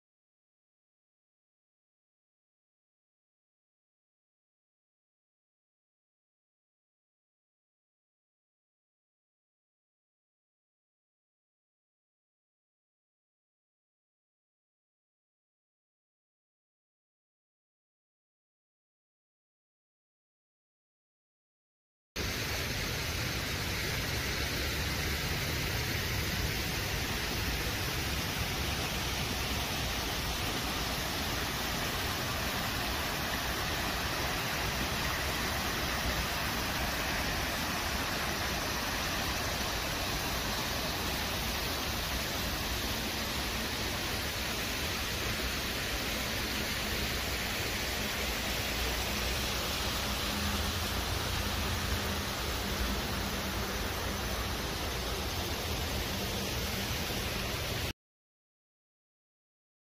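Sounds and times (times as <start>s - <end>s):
falling water rushing: 22.2s - 57.9s.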